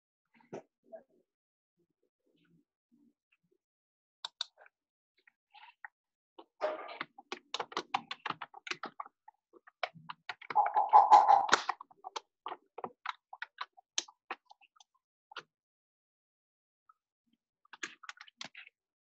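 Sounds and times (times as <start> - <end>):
keyboard typing: 10.4 - 11.7.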